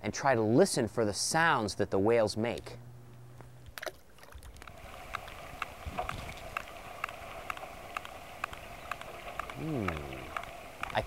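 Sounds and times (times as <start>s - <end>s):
distant whale echolocation clicks: 3.6s - 11.0s
underwater noise hiss: 4.7s - 11.0s.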